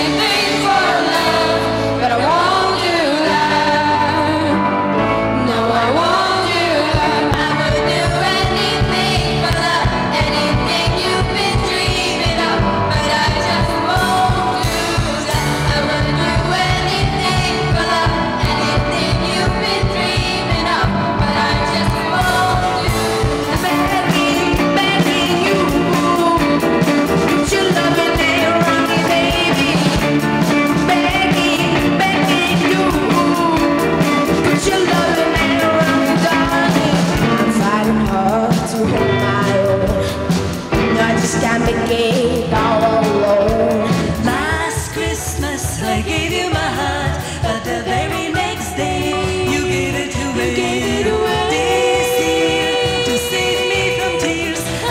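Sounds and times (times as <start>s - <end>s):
group of young voices singing: 0.0s - 4.6s, 5.3s - 54.9s
band playing over a steady beat: 0.0s - 54.9s
piano: 0.0s - 54.9s.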